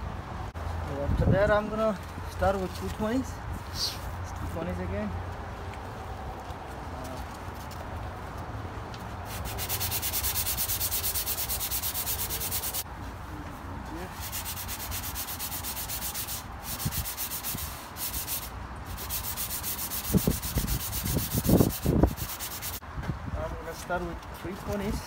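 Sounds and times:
sandpaper rubbing on painted steel: 0:09.3 - 0:12.8, 0:14.0 - 0:22.8.

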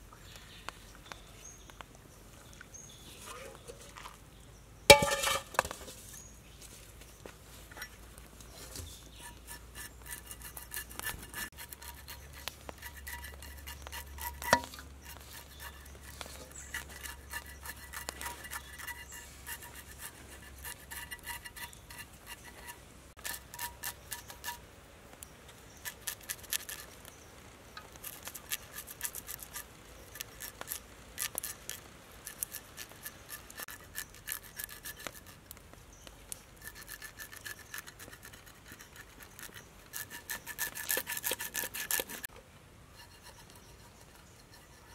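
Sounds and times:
knife scraping scaly skin: 0:08.6 - 0:24.6, 0:25.8 - 0:27.1, 0:27.9 - 0:35.6, 0:36.3 - 0:42.3.

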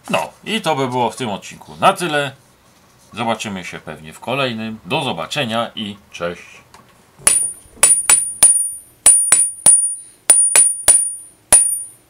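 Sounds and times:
hammer ringing on anvil: 0:07.3 - 0:12.0.

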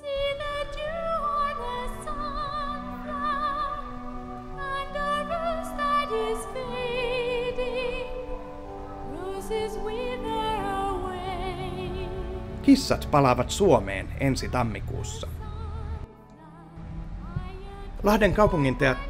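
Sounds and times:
high singing voice with vibrato: 0:00.0 - 0:12.4
sustained low accompaniment: 0:11.4 - 0:16.1.

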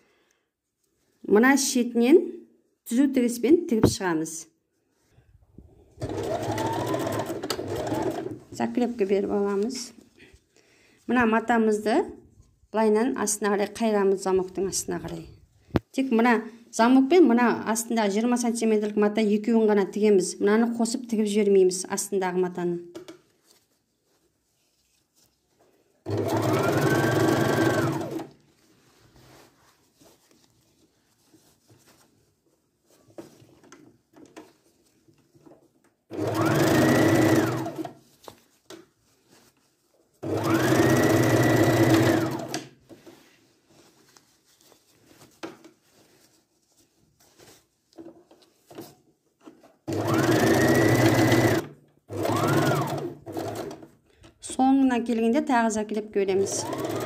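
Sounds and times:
sewing machine motor whine: 0:06.1 - 0:08.2, 0:56.4 - 0:57.0
cloth handling: 0:23.2 - 0:35.8, 0:36.7 - 0:42.2, 0:42.8 - 0:49.8.

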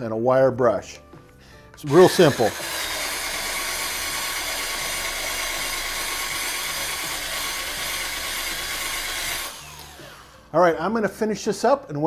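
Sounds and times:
wire brush scrubbing iron: 0:01.8 - 0:10.3
drill motor whine: 0:01.8 - 0:10.5.

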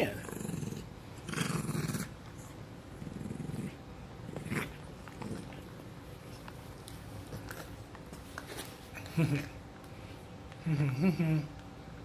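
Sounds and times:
dog growling in play: 0:00.0 - 0:05.8.

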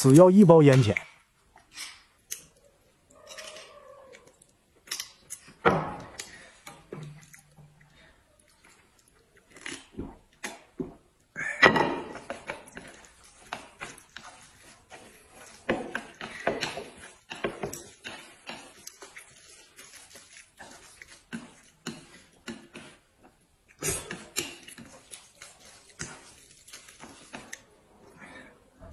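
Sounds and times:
chewing: 0:01.5 - 0:10.7, 0:12.3 - 0:28.2
slurping from a bowl: 0:17.9 - 0:27.7.

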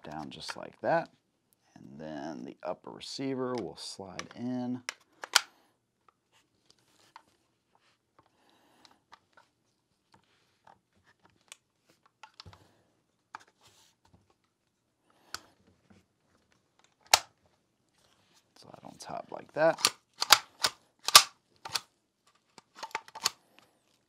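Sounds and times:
metal gun parts clicking: 0:04.2 - 0:05.5, 0:17.0 - 0:17.3, 0:19.7 - 0:21.9, 0:22.6 - 0:23.4.

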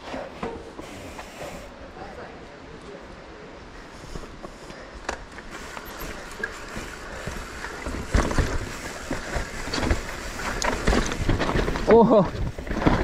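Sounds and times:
wheels knocking on rocks: 0:05.1 - 0:13.0
bike tyres rolling over rock: 0:05.2 - 0:13.0
wind noise on microphone: 0:05.5 - 0:13.0.

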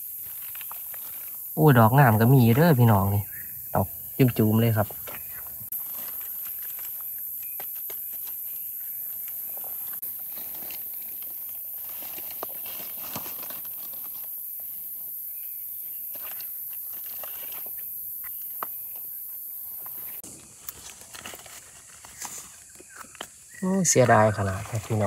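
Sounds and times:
dry leaves rustling and crackling: 0:00.0 - 0:01.6, 0:05.0 - 0:14.9, 0:15.9 - 0:18.6, 0:19.7 - 0:25.0.

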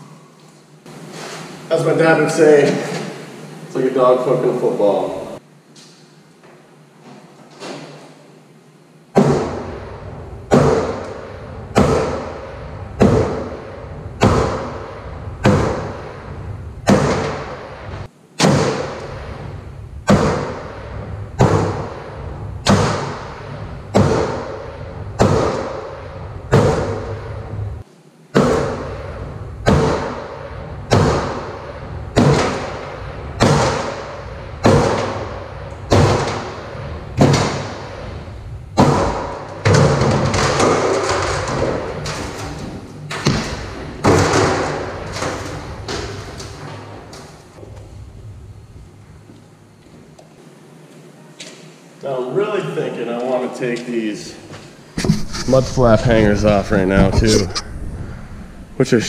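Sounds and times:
sledgehammer striking steel: 0:09.2 - 0:19.4, 0:20.0 - 0:27.4, 0:28.4 - 0:38.2.

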